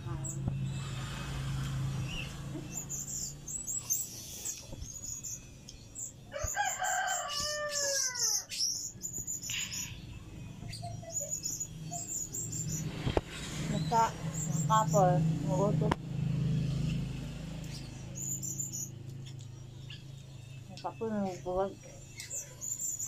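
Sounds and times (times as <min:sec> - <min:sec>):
rooster crowing: 0:06.3 - 0:08.5.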